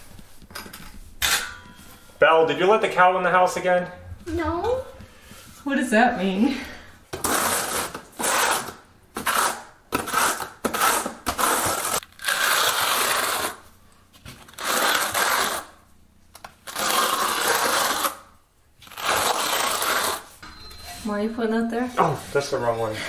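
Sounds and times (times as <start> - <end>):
steel trowel scraping mortar: 7.2 - 13.6, 18.9 - 20.9.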